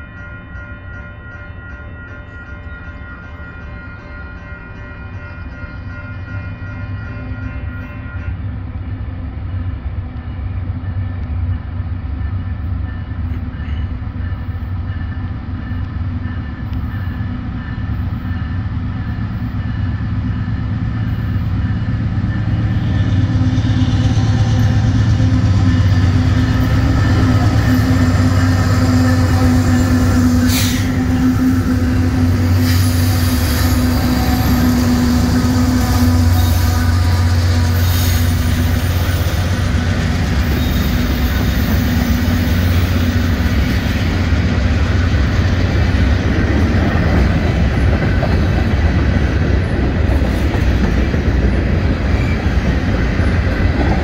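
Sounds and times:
diesel locomotive engines droning: 0:00.0 - 0:54.0
train wheels on rails: 0:08.5 - 0:54.0
train horn chord: 0:22.4 - 0:39.8.

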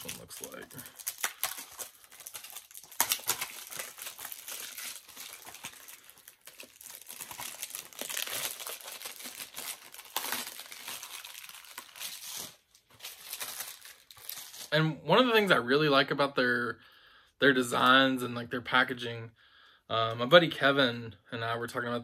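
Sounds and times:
plastic wrapping crinkling and tearing: 0:00.0 - 0:14.8.

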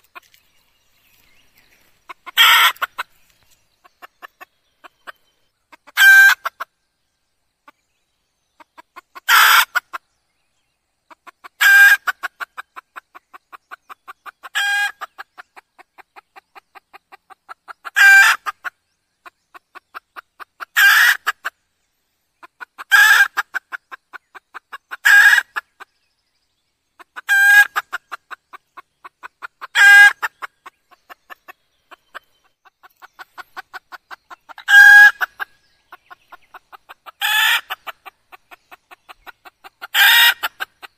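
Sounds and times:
hen calling: 0:01.8 - 0:03.2, 0:32.9 - 0:38.4, 0:39.1 - 0:40.9.

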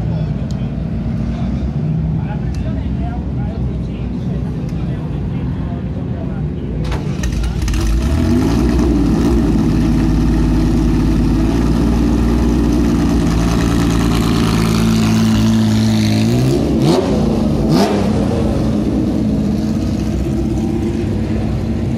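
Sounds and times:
rally car engine revving: 0:07.0 - 0:21.9.

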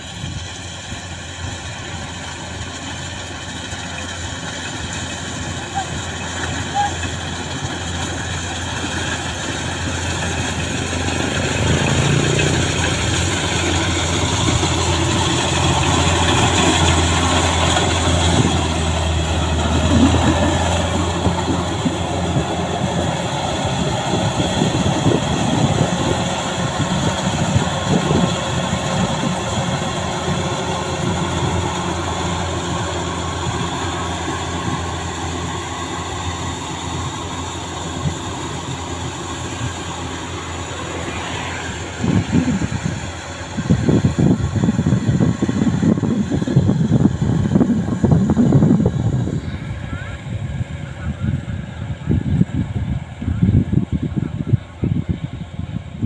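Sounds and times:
harvester engine drone: 0:00.0 - 0:56.0.

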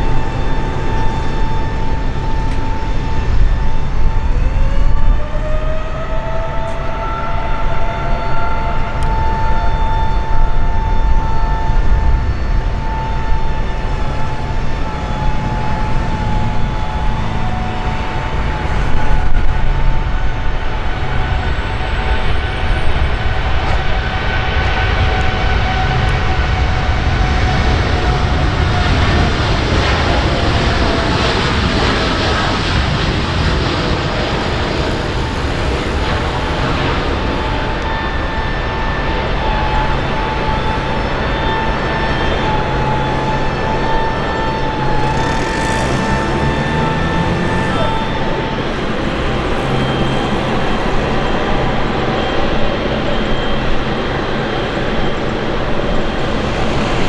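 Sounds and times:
jet aircraft rumble and whine: 0:00.0 - 0:57.0
jet engines rushing: 0:00.0 - 0:57.0.

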